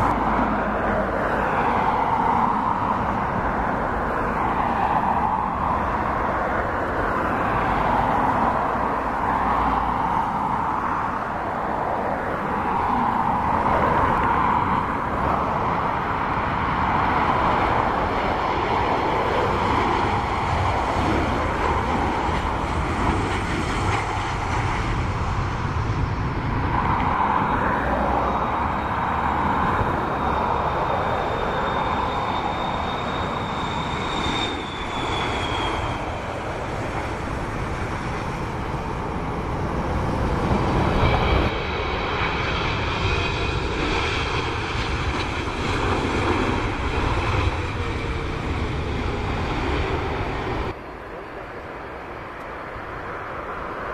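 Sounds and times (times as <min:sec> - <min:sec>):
jet airliner engines: 0:00.0 - 0:53.9.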